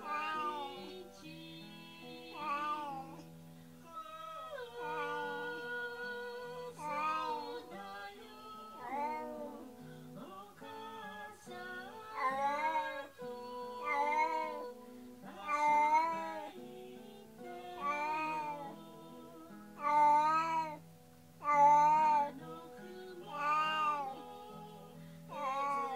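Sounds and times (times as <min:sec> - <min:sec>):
cat meowing: 0:00.0 - 0:00.9, 0:04.0 - 0:05.6, 0:13.8 - 0:14.7, 0:15.4 - 0:16.5, 0:17.8 - 0:18.7, 0:19.8 - 0:20.8, 0:21.4 - 0:22.4, 0:25.3 - 0:25.9.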